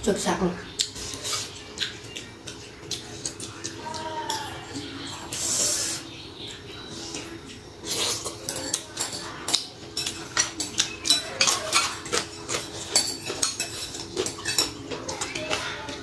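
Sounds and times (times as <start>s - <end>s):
metal spoon clinking on glass bowl: 8.2s - 15.6s.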